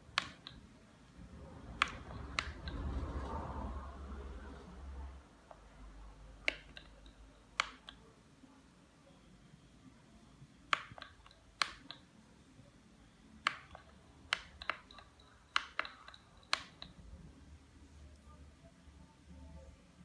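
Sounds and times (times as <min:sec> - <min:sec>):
plastic button clicks: 0:06.4 - 0:08.0.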